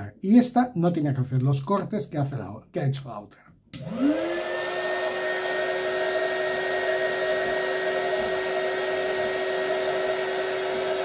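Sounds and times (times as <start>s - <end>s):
hot air gun fan whine: 3.8s - 11.0s.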